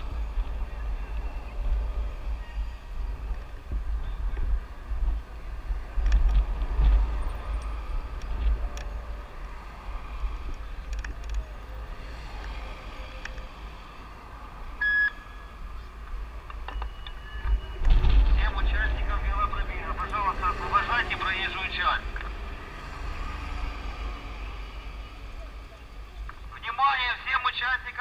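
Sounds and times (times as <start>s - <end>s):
wind buffeting microphone: 0.0s - 11.5s, 17.4s - 20.8s
faint street noise: 0.0s - 28.0s.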